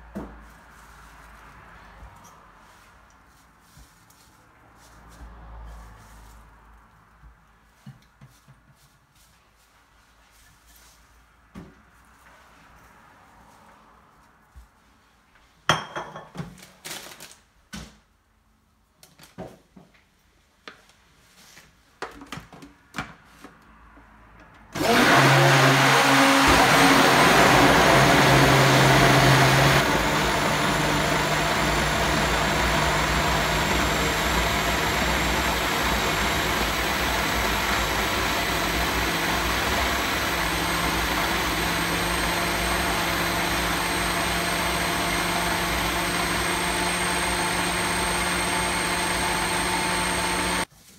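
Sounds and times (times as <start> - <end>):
blender motor running: 24.8 - 50.7.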